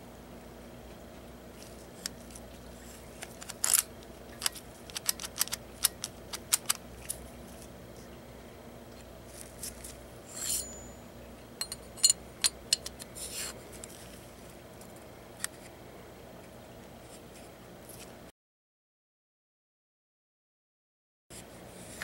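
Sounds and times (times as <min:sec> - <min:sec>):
metal bolt sliding with a scrape: 0:10.3 - 0:10.8.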